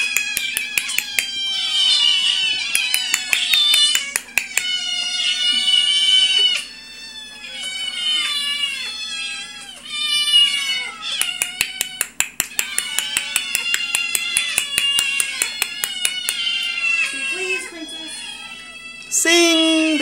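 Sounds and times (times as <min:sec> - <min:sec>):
kittens meowing: 0:00.0 - 0:20.0
rapid sharp clicks: 0:11.2 - 0:16.4.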